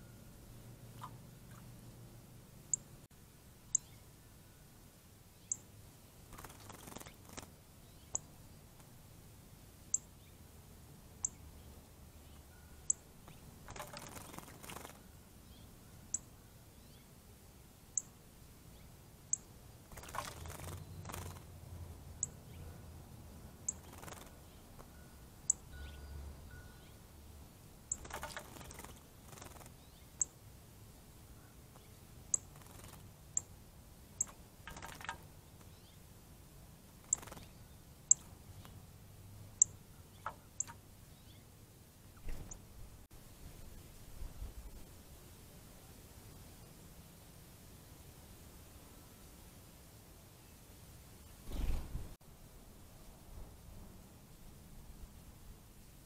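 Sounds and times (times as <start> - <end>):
bird splashing water: 6.3 - 7.6, 13.6 - 15.0, 19.8 - 21.5, 27.9 - 29.8, 34.2 - 35.4
sharp high ticks: 20.0 - 21.5, 23.7 - 26.0, 37.0 - 37.5.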